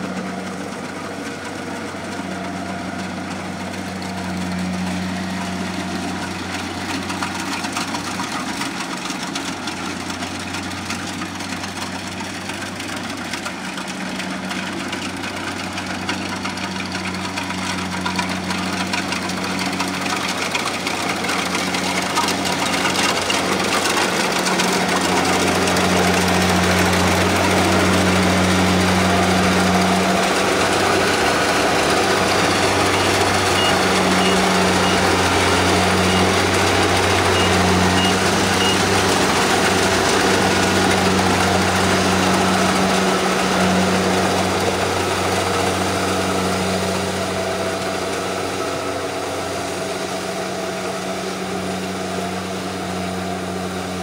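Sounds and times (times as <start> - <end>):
combine harvester engine running: 0.0 - 54.0
short high beeps: 32.9 - 35.1, 37.4 - 38.8.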